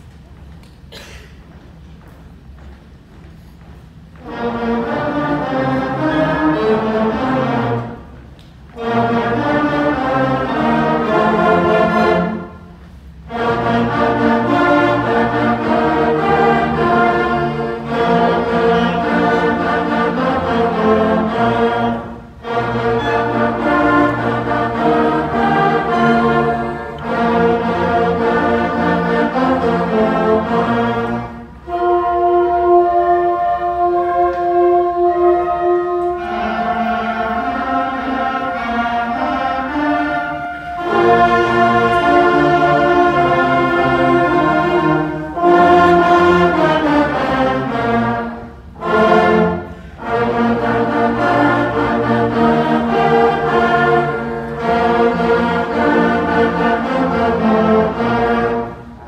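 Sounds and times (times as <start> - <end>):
concert band playing: 13.3 - 58.7.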